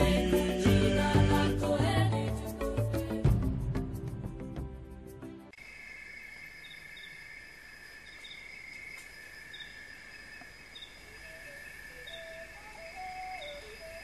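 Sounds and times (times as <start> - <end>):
high insect chorus: 5.6 - 14.0
low whistled notes: 11.1 - 14.0.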